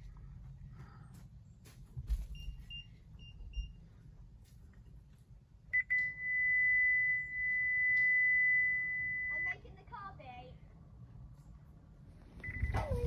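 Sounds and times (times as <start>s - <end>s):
continuous warning tone: 2.2s - 10.6s, 12.3s - 13.0s
short high warning beeps: 12.4s - 13.0s.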